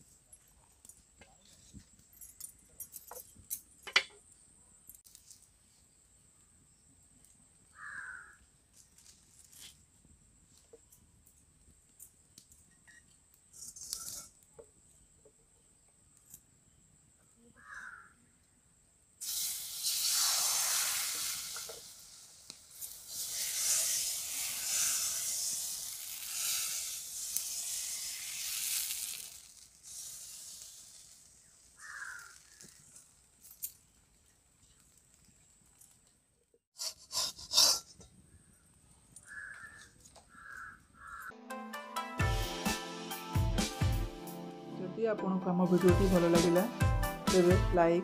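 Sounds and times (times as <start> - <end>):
batter sizzling on hot pan: 19.2 - 33.4.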